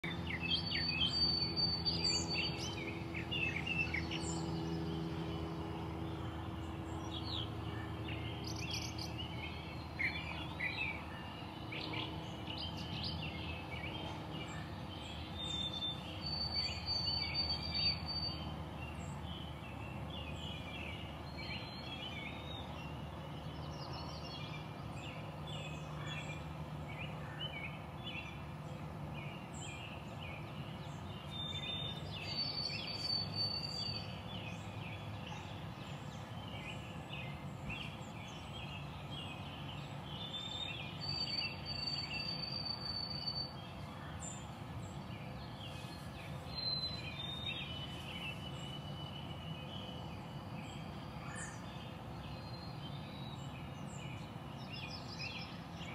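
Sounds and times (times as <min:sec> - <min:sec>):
birds chirping: 0:00.0 - 0:55.9.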